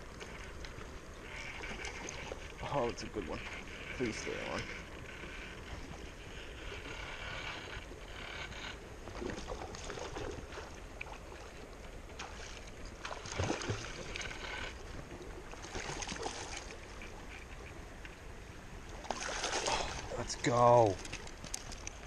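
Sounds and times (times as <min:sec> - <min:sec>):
stream water rushing: 0:09.2 - 0:22.0.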